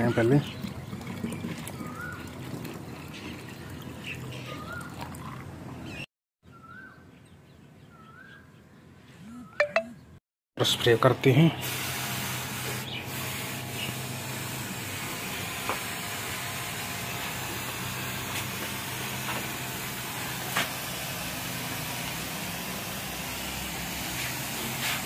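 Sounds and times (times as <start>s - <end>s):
spray bottle spritzing: 16.6s - 25.0s.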